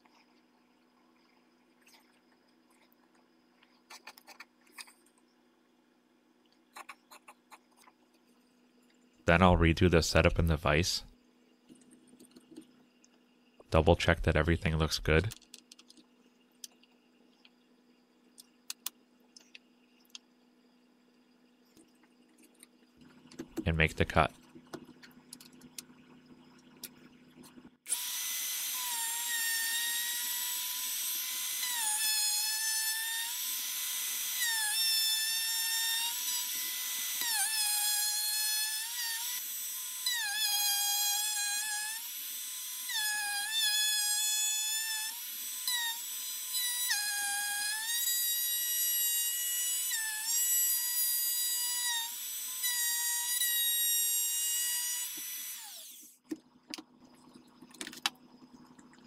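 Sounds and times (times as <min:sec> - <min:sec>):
router whining cutting wood: 0:27.9 - 0:56.2.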